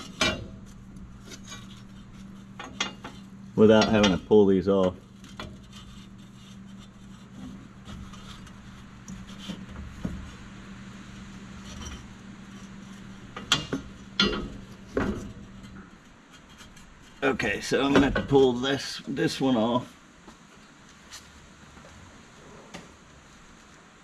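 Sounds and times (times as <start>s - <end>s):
metal clanks: 0.0s - 10.4s, 11.5s - 18.6s
steady low hum: 0.0s - 24.0s.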